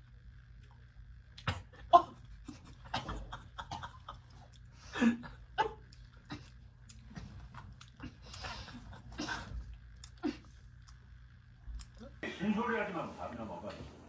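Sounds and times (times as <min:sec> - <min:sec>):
chewing: 0:05.9 - 0:11.1, 0:11.7 - 0:12.2.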